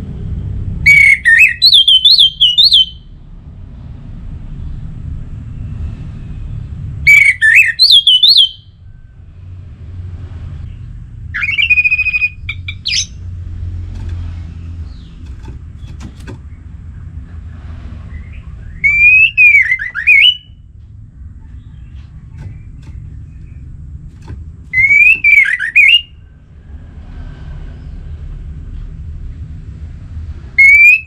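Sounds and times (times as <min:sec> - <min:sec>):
bird singing whistled phrases: 0:00.9 - 0:03.0, 0:07.1 - 0:08.7, 0:11.4 - 0:13.1, 0:18.6 - 0:20.6, 0:24.7 - 0:26.1, 0:30.6 - 0:31.0
steady low rumble: 0:03.0 - 0:07.1, 0:08.7 - 0:30.6.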